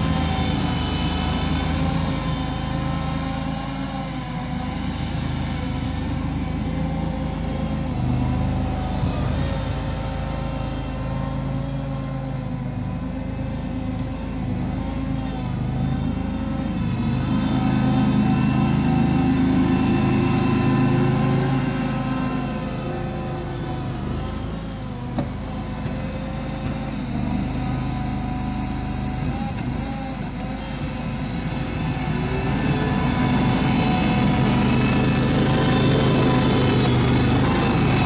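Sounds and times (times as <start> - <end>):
wheel loader engine running: 0.0 - 38.0.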